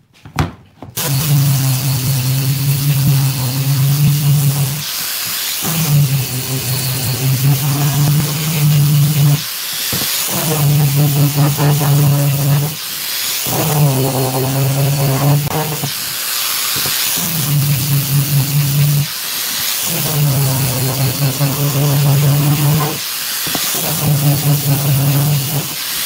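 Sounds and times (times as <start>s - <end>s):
angle grinder motor hum: 1.0s - 26.0s
sanding hiss: 1.0s - 26.0s.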